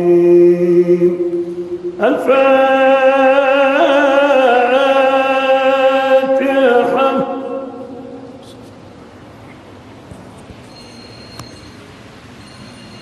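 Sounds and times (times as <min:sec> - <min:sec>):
man chanting melodically: 0:00.0 - 0:08.6.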